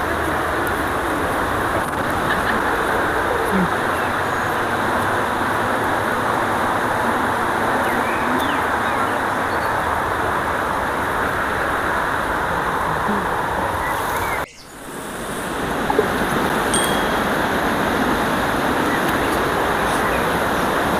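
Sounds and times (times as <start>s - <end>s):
river water rushing over stones: 14.8s - 20.9s.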